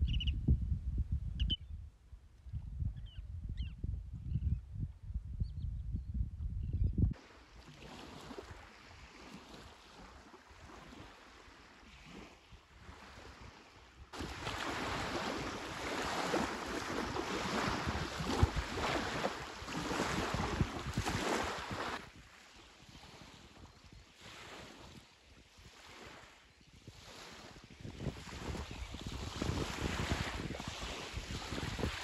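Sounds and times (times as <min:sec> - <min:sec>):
wind on microphone: 0:00.0 - 0:32.0
small waves lapping on shore: 0:07.2 - 0:32.0.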